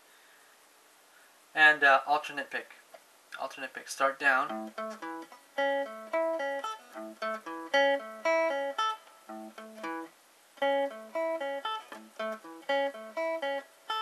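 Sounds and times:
electric guitar picked notes: 4.4 - 14.0.

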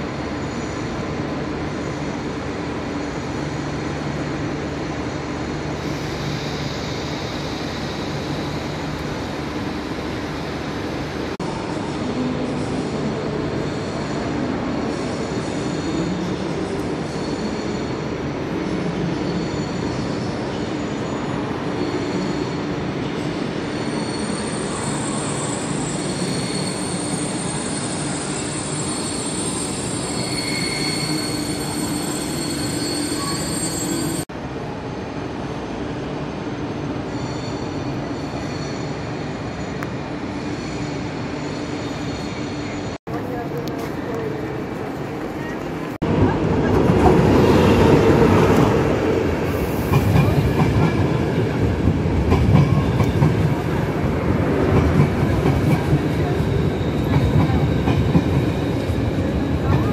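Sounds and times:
train rolling rumble: 0.0 - 59.9
train wheels squealing: 4.9 - 10.9, 12.6 - 34.3, 36.7 - 43.0, 47.5 - 59.9.

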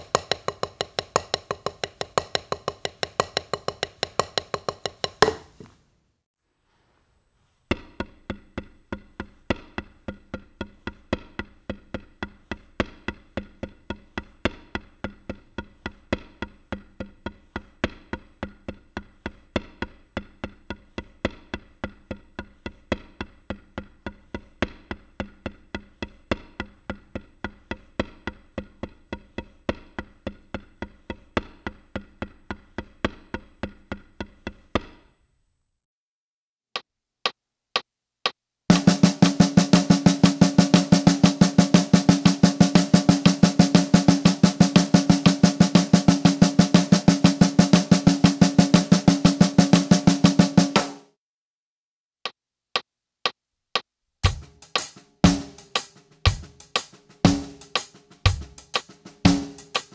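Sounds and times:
drumsticks on practice pad: 0.0 - 5.8, 38.7 - 51.1, 52.3 - 59.9.

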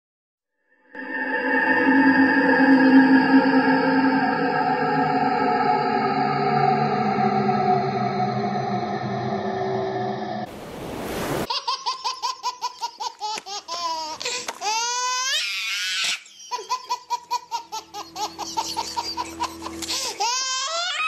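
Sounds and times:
high-pitched laughter: 11.5 - 14.8, 15.7 - 21.0.

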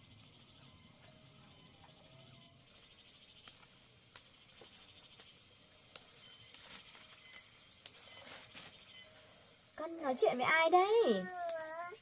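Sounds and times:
leaves rustling: 2.6 - 12.0
vegetable stems snapping: 3.4 - 4.3, 5.2 - 8.0.

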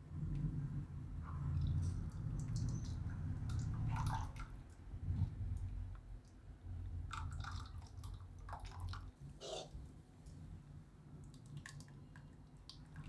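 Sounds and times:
low steady hum: 0.0 - 13.0
liquid splashing into bowl: 1.6 - 4.8.

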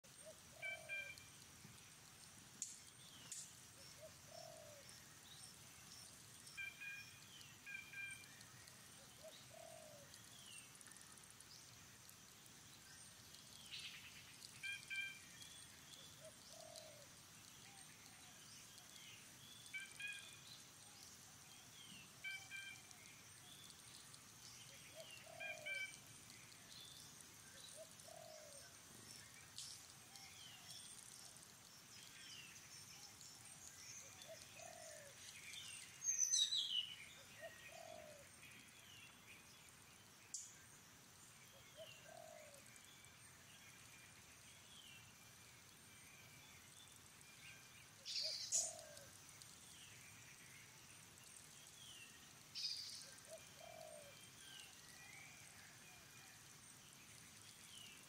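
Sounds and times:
faint high insect hum: 0.1 - 58.0
low bird coo: 0.2 - 1.2, 4.0 - 4.9, 9.0 - 10.2, 16.2 - 17.1, 24.9 - 25.9, 27.5 - 28.8, 34.1 - 35.2, 37.4 - 38.3, 41.8 - 42.7, 48.2 - 49.1, 53.2 - 54.2.

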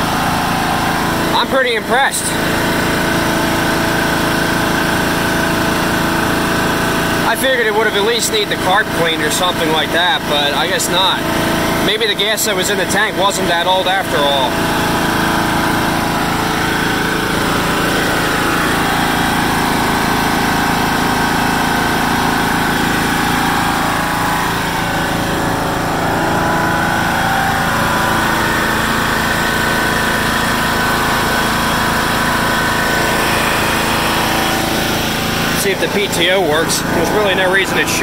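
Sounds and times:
lawn tractor engine running: 0.0 - 38.0.

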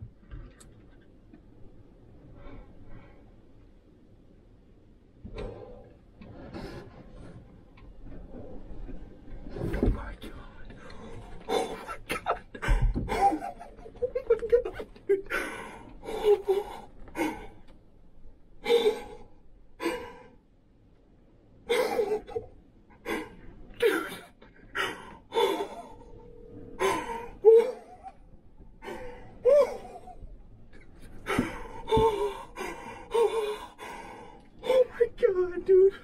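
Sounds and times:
man breathing hard: 30.9 - 34.8.

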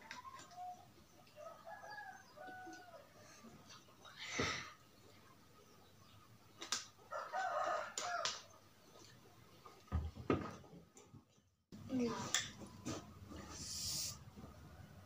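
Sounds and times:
rooster crowing: 7.1 - 8.4.

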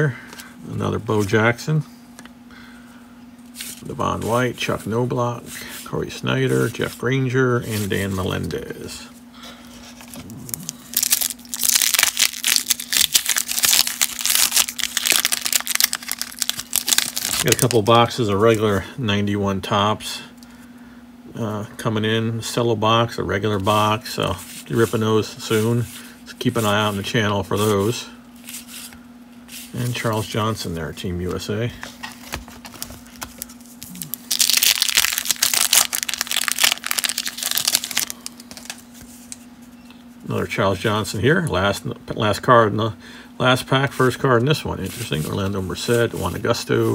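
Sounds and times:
wax paper wrapper crinkling: 9.8 - 18.1, 31.9 - 39.5.

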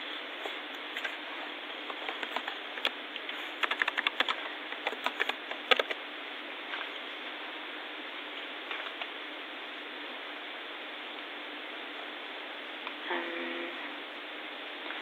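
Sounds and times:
computer keyboard keys clicking: 2.0 - 3.0, 3.6 - 6.0.

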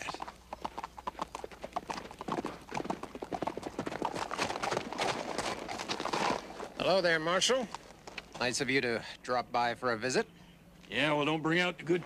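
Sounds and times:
horse hooves clip-clopping: 0.0 - 8.6.

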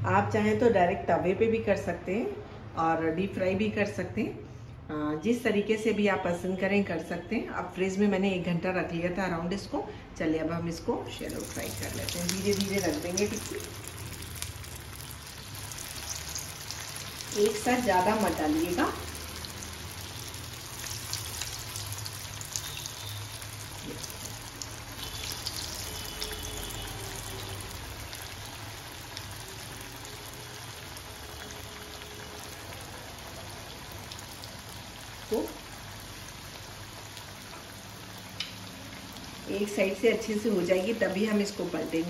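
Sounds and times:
patties sizzling in hot oil: 11.0 - 42.0
oil crackling: 11.1 - 39.5.

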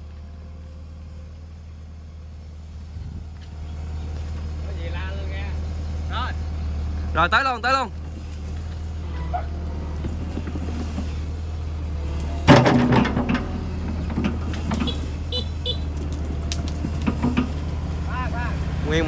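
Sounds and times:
excavator diesel engine drone: 0.0 - 19.0
loud clatter: 12.4 - 15.0
rattles and clicks: 16.0 - 17.8.

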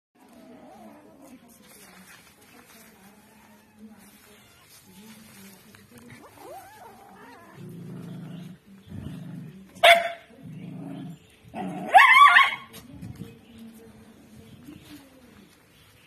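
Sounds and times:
dog growling: 6.4 - 9.7, 10.4 - 11.9
dog barking: 9.8 - 10.3, 11.8 - 12.7.

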